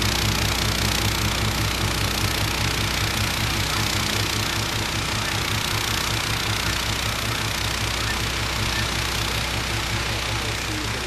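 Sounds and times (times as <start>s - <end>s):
snowblower engine running: 0.0s - 11.0s.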